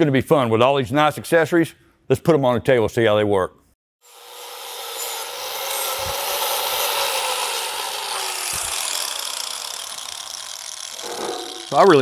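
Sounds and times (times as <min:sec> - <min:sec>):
angle grinder grinding steel: 0:04.0 - 0:12.0.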